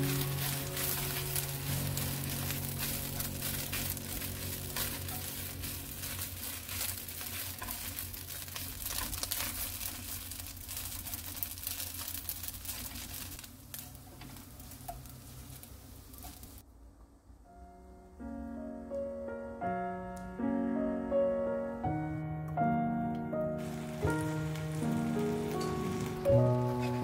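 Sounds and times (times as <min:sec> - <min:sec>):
fish skins crackling in a pan: 0:00.0 - 0:16.6, 0:23.6 - 0:27.0.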